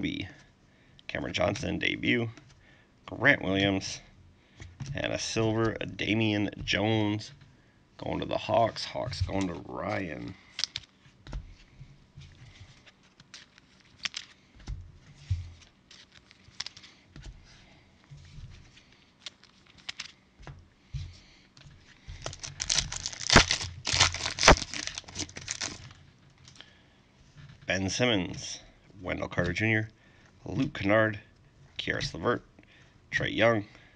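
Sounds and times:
foil wrapper tearing and crinkling: 0:22.2 - 0:26.0.

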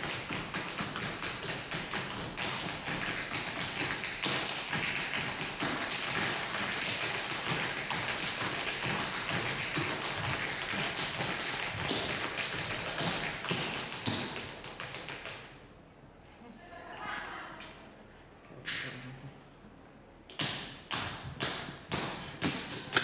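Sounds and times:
rapid tapping and clicking: 0:00.0 - 0:15.5
steady high hiss: 0:21.7 - 0:23.0.

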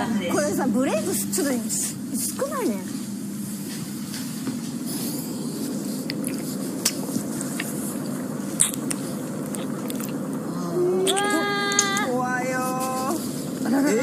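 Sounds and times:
low background hum: 0:00.0 - 0:14.0
wet lip smacks: 0:06.0 - 0:07.8, 0:08.6 - 0:10.3.

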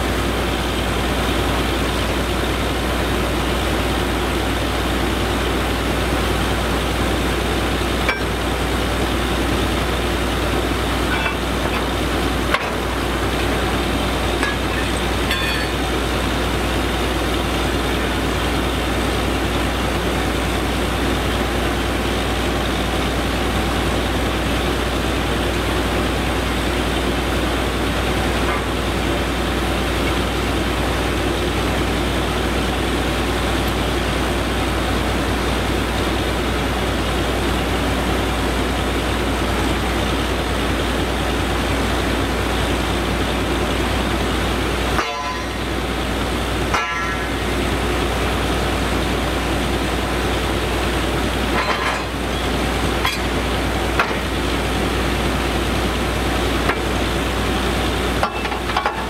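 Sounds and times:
drilling rig engine and compressor: 0:00.0 - 0:59.0
metal drill pipe clanks: 0:07.7 - 0:08.8, 0:09.6 - 0:18.4, 0:28.3 - 0:29.0, 0:44.8 - 0:49.0, 0:50.9 - 0:54.8, 0:56.4 - 0:57.0, 0:58.1 - 0:59.0.

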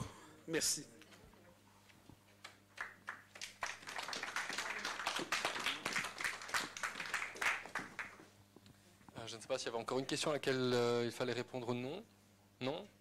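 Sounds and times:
audience applauding: 0:02.8 - 0:08.3.

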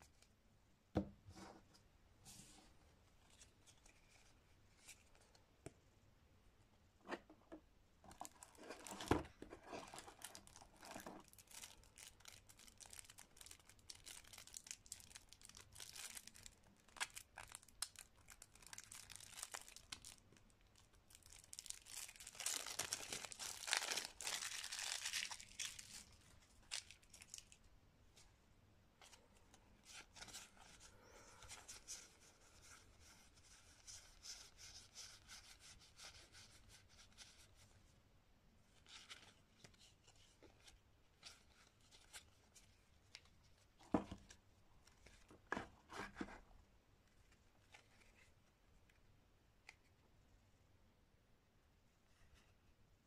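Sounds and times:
plastic wrap tearing and crumpling: 0:09.7 - 0:27.6.

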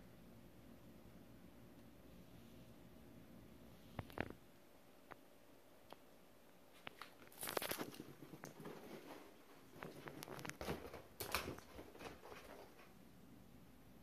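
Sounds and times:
puppy running across floor: 0:07.4 - 0:13.0.

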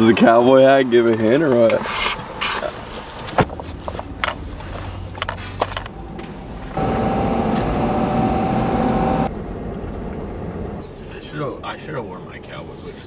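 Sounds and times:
truck cab hum: 0:03.5 - 0:12.2
running noise with whine: 0:06.7 - 0:09.3.

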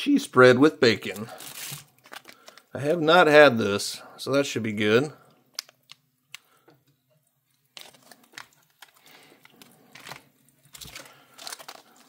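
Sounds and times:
plastic packets crinkling: 0:01.0 - 0:02.8, 0:05.5 - 0:06.6, 0:07.6 - 0:12.0.

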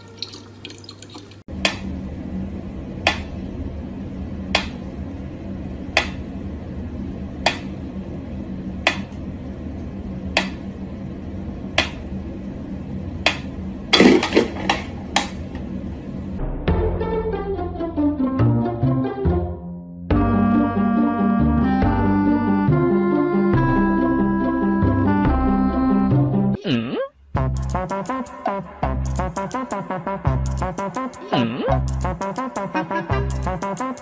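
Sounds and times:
low steady hum: 0:00.0 - 0:16.6, 0:23.6 - 0:33.9.

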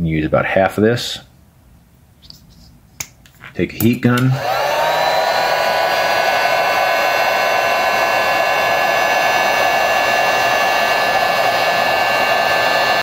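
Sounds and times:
heat gun blowing air: 0:04.3 - 0:13.0.

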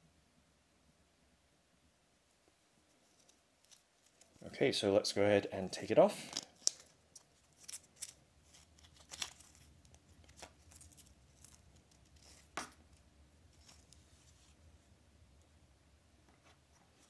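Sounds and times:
watch strap rustling: 0:02.9 - 0:04.5, 0:06.2 - 0:14.6.

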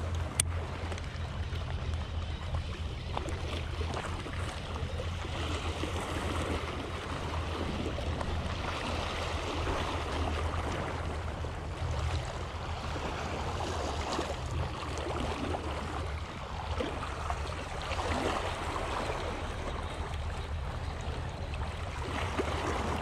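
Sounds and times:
small waves lapping against rock: 0:00.0 - 0:23.0
steady low rumble: 0:00.0 - 0:23.0.

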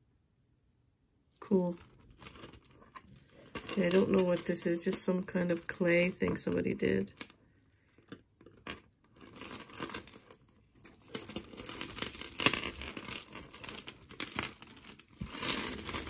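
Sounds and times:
plastic bag crinkling: 0:09.2 - 0:16.0.

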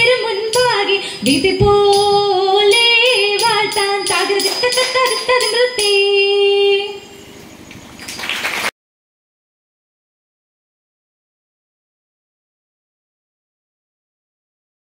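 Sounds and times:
women singing: 0:00.0 - 0:07.1.

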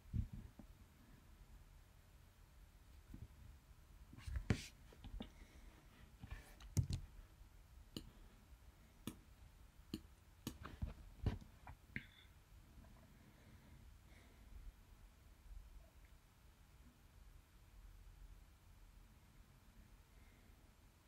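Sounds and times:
computer mouse clicking: 0:06.6 - 0:07.1.

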